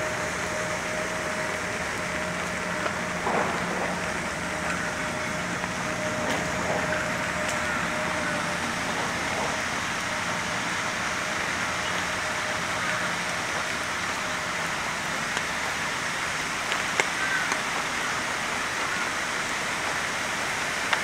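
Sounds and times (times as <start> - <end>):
low hum: 0.0 - 16.4
rain falling: 0.0 - 21.0.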